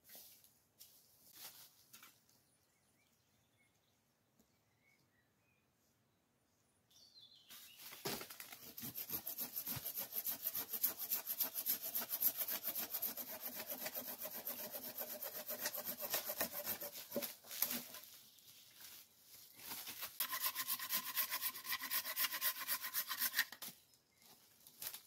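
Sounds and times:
hand saw cutting log: 0:08.6 - 0:18.0, 0:20.1 - 0:23.6.

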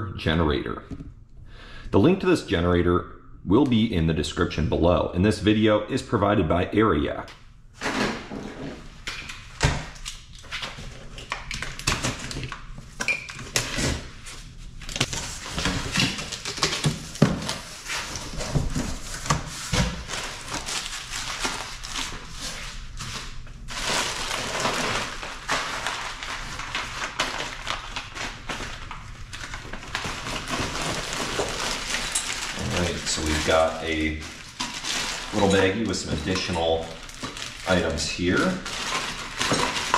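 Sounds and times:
plastic wrapping crinkling: 0:09.3 - 0:39.9.

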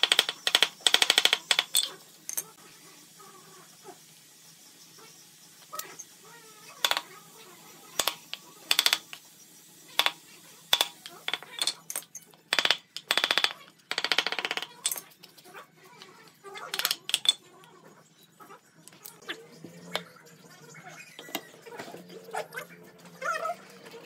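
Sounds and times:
wooden mallet striking chisel: 0:08.0 - 0:09.2, 0:10.0 - 0:11.7.

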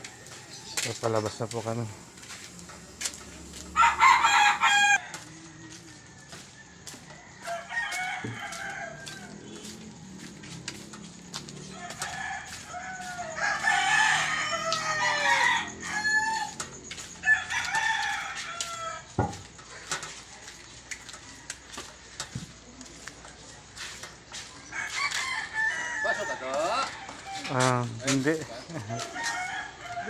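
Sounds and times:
roosters crowing: 0:00.0 - 0:20.1, 0:21.1 - 0:30.0.

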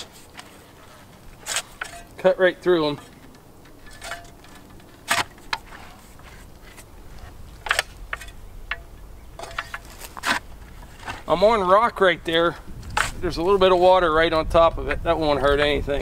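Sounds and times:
post hole digger thudding into dirt: 0:03.9 - 0:06.0.

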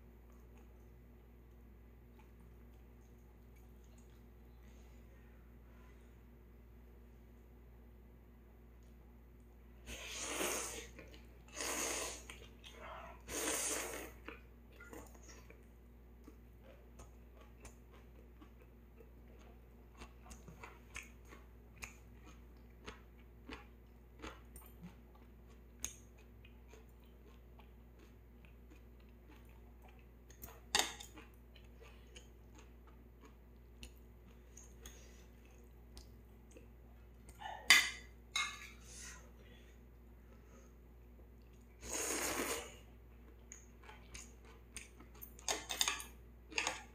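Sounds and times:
soft chewing: 0:00.0 - 0:06.1, 0:10.9 - 0:11.6, 0:12.2 - 0:13.3, 0:14.0 - 0:46.9
noodle slurping: 0:09.9 - 0:12.5, 0:13.2 - 0:14.2, 0:41.8 - 0:42.8.

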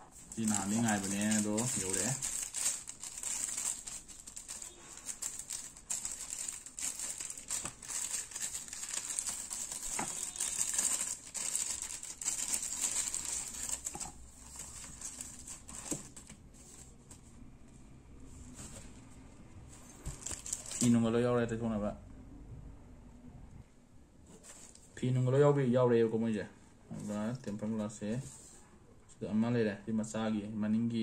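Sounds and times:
plastic packaging crinkling: 0:00.1 - 0:16.4, 0:20.1 - 0:21.0.

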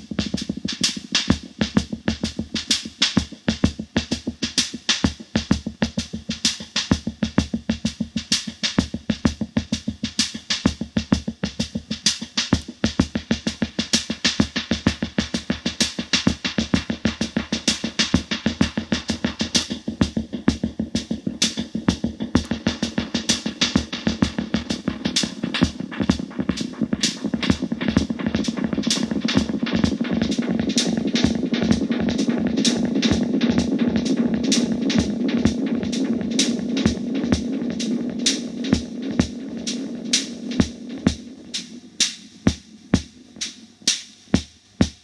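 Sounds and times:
drum machine rhythm with tape echo: 0:00.0 - 0:45.0.

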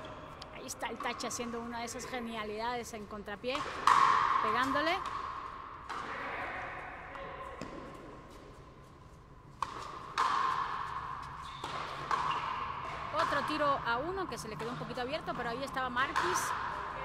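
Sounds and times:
racket hitting ball: 0:03.5 - 0:06.4, 0:07.2 - 0:08.5, 0:09.5 - 0:13.9, 0:14.6 - 0:16.8.

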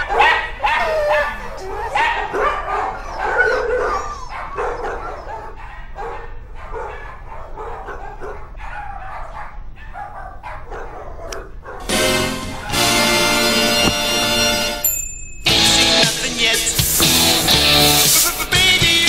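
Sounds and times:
dogs barking and yipping: 0:00.0 - 0:13.4.

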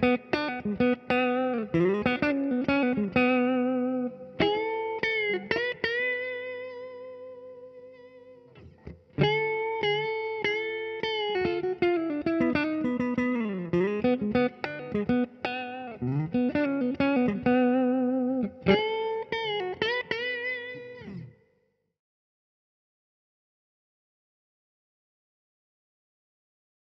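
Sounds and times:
clean electric guitar solo: 0:00.0 - 0:21.4.

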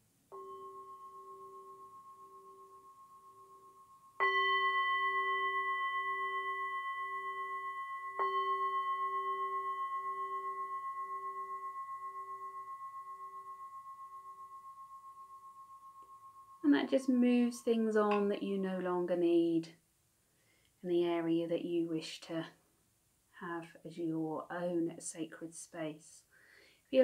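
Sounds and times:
singing bowl ringing: 0:00.3 - 0:17.4.

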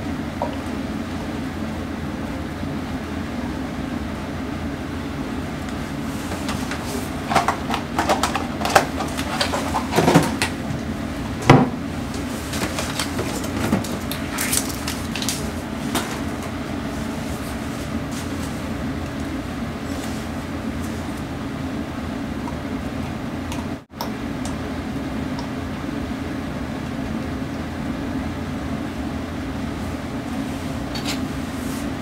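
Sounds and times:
steady low hum: 0:00.0 - 0:32.0
paper wrapper crinkling and tearing: 0:12.5 - 0:15.6.

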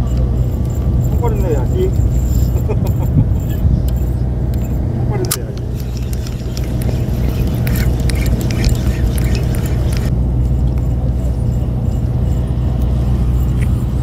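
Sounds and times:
construction machinery engine drone: 0:00.0 - 0:14.0
sharp clicks: 0:03.8 - 0:10.1.

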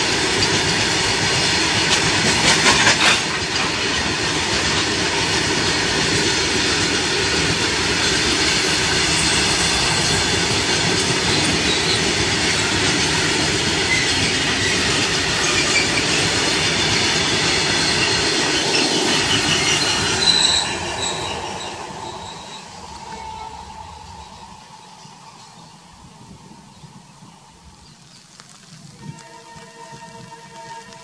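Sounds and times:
train wheels rumbling on rails: 0:00.0 - 0:28.2, 0:28.8 - 0:31.0
high wheel squeals: 0:09.0 - 0:12.8, 0:13.7 - 0:25.6.

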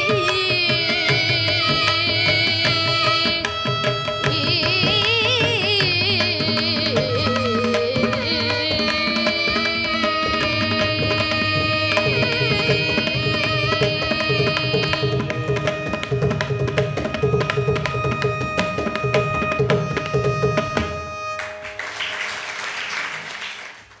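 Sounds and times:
violin melody: 0:00.0 - 0:21.8
audience applause: 0:21.4 - 0:24.0.

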